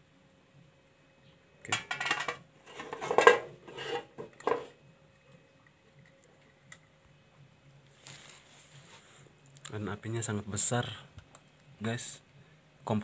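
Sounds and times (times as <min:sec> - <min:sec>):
metal pot lid clattering: 0:01.7 - 0:04.8.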